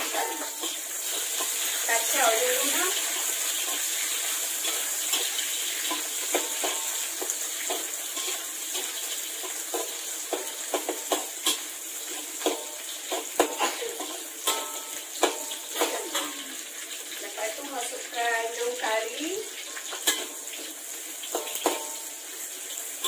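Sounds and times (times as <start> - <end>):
onions sizzling in hot oil: 0.0 - 23.0
metal ladle clinking on a wok: 12.4 - 16.3.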